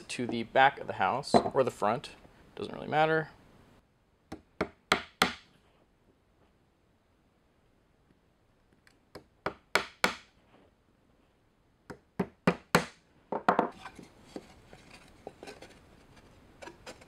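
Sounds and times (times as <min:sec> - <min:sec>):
hammer striking nail into wood: 0:04.3 - 0:05.5, 0:09.2 - 0:10.3, 0:11.9 - 0:13.0.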